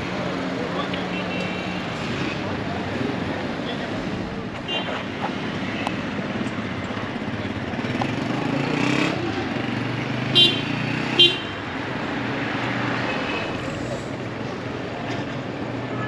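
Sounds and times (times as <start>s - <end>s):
road traffic passing: 0.0s - 16.0s
vehicle horn toots: 10.4s - 11.6s.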